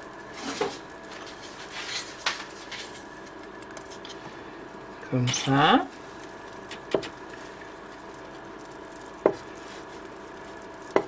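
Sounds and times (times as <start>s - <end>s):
faint hum: 0.0s - 11.0s
utensils scraping frying pan: 0.3s - 3.1s.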